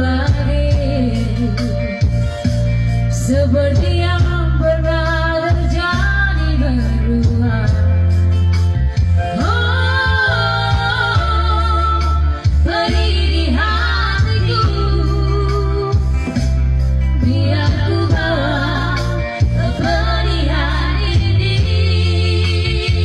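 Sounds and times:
women singing a duet: 0.0 - 2.0, 3.1 - 7.9, 9.3 - 16.4, 17.2 - 23.0
backing music with bass: 0.0 - 23.0.

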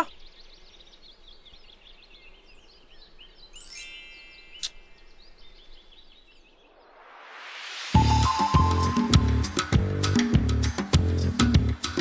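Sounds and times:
birds chirping: 0.0 - 6.9
bright ringing chime: 3.6 - 5.0
sharp click: 4.6 - 4.8.

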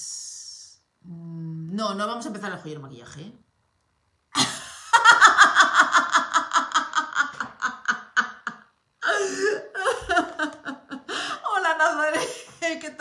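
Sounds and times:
woman laughing hard: 4.4 - 11.4.

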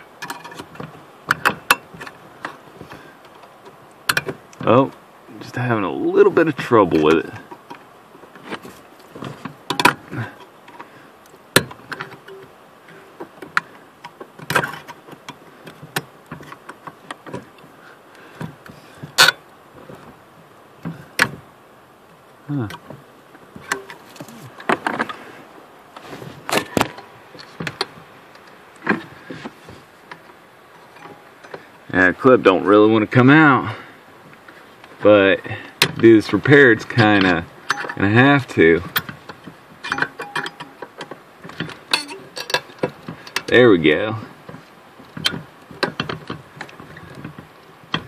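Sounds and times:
screwdriver prying and scraping: 41.6 - 43.4.

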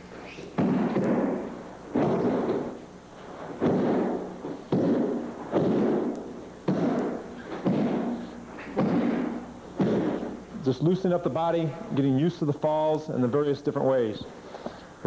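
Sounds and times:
bodies slapping a padded mat: 0.6 - 2.8, 3.4 - 10.4.

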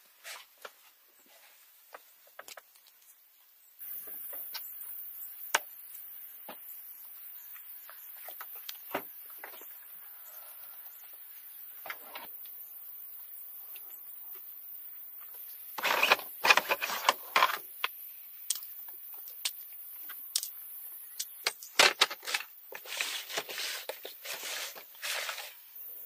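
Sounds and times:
rustling and scraping of gear: 15.4 - 17.8, 21.8 - 25.8.

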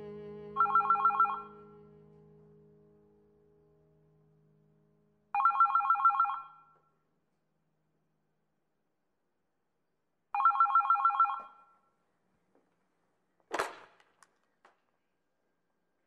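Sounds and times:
electronic telephone ring: 0.6 - 1.6, 5.4 - 6.8, 10.4 - 11.7.

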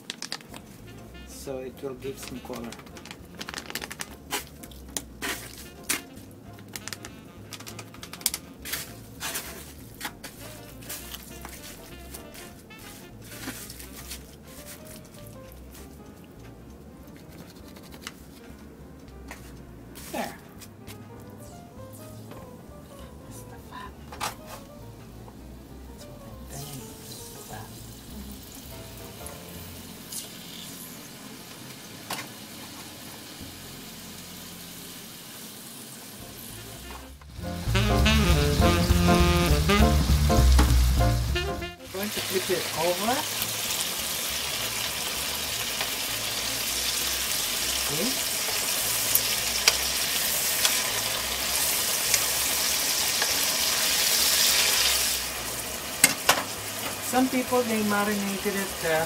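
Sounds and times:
meat sizzling in hot oil: 2.1 - 7.7, 26.6 - 59.0.

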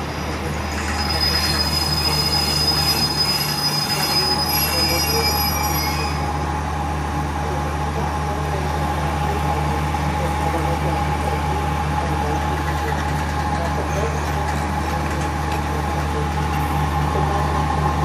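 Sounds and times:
train wheels squealing: 0.2 - 6.3.

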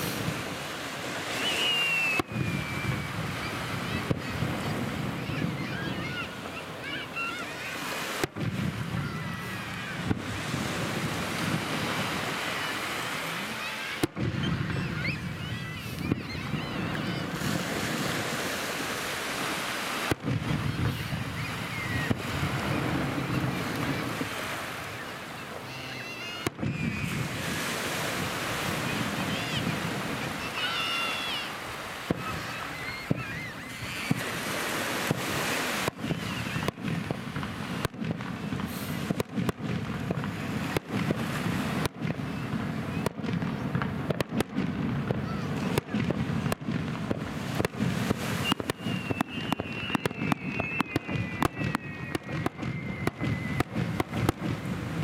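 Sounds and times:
fireworks bursting with bangs: 0.0 - 55.0
fireworks crackling: 0.0 - 55.0
surf washing on shore: 0.0 - 55.0.

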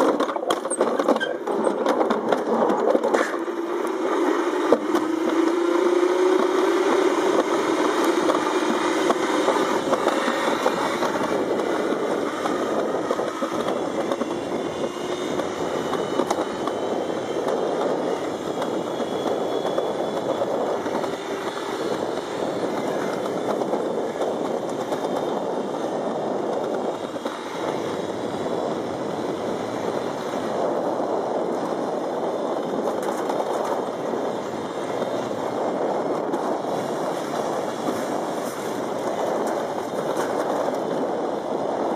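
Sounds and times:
sled rumbling down metal track: 0.0 - 41.9
rising whine: 3.3 - 25.3.

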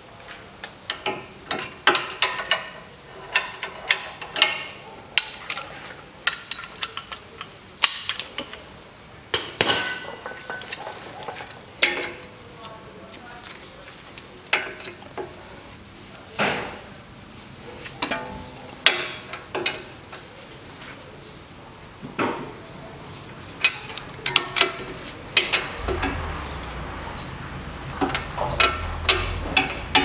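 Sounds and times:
hand tools clanking on bolts: 23.6 - 26.5, 28.0 - 30.0
low rumble: 25.7 - 29.0.

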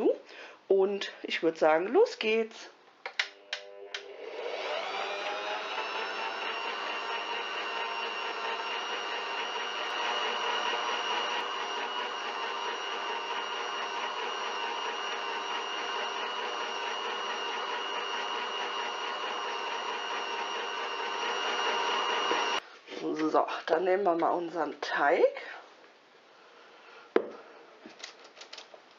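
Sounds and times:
stand mixer motor whine: 3.7 - 22.6.

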